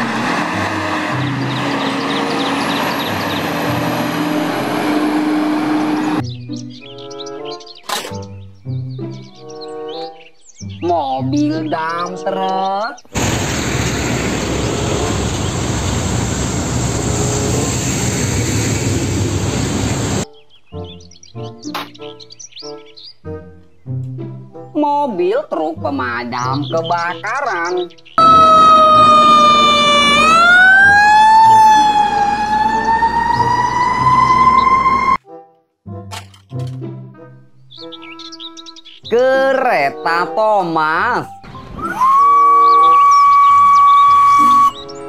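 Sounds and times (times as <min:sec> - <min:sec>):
dump truck engines humming: 0:00.0 - 0:06.2, 0:13.1 - 0:20.2, 0:28.2 - 0:35.2
road and tyre noise: 0:00.0 - 0:06.3, 0:13.0 - 0:20.3, 0:28.2 - 0:35.2.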